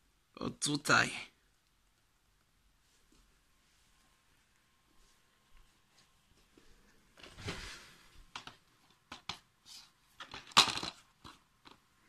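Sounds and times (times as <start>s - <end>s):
plastic cases rustling: 7.1s - 11.9s
plastic cases clicking and knocking: 8.3s - 9.5s, 10.2s - 11.9s.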